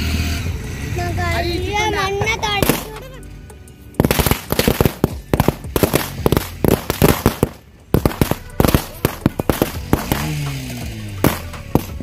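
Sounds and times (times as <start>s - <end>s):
firecrackers bursting: 2.6s - 3.1s, 4.0s - 12.0s.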